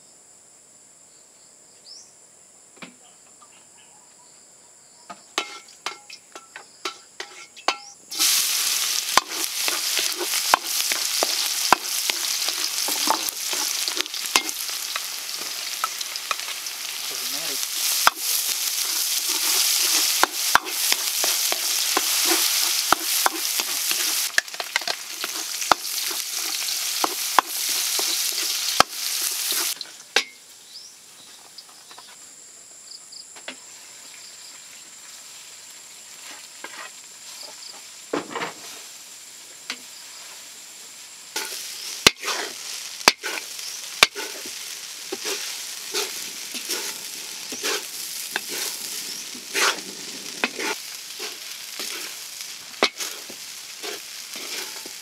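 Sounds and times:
garlic sizzling in a metal wok: 5.3 - 31.0, 33.6 - 55.0
wooden spatula scraping a wok: 5.4 - 30.0, 36.1 - 39.0, 41.4 - 55.0.

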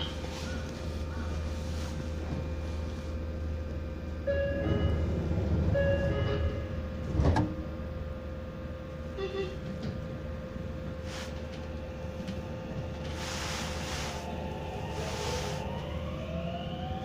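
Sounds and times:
steady train hum: 0.0 - 17.0
train doors closing with thump: 4.4 - 7.8.

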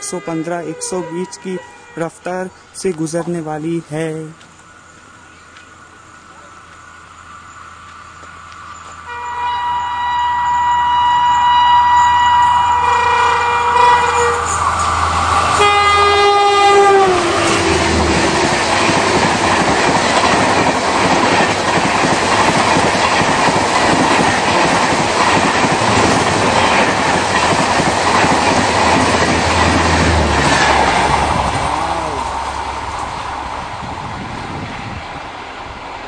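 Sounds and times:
train horn: 0.0 - 2.3, 9.1 - 14.6, 15.3 - 18.8
train coaches rushing past: 10.4 - 36.0.

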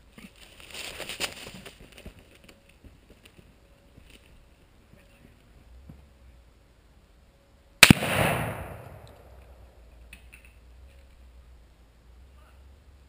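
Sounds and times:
rifle shot with rolling echo: 7.8 - 9.8.

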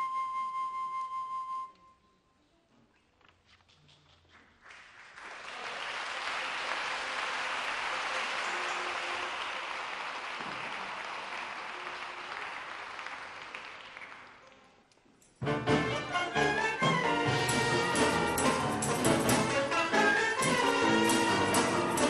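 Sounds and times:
audience applauding: 4.5 - 14.8
orchestra playing: 15.4 - 22.0.

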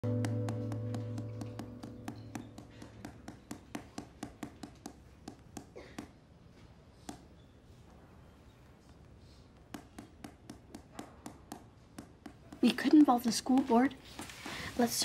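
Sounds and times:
background music: 0.0 - 3.8
pencil tapping on desk: 0.1 - 6.1, 9.6 - 13.7.

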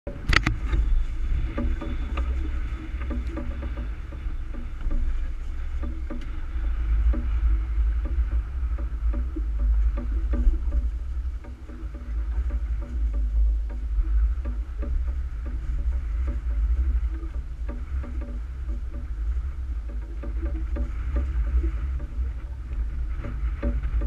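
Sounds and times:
boat engine low rumble: 0.0 - 24.0.

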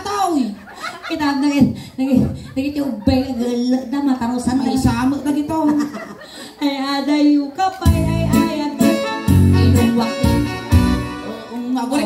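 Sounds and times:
woman singing into a microphone: 6.6 - 12.0
bass notes: 7.9 - 12.0
electronic keyboard chords: 7.9 - 12.0.

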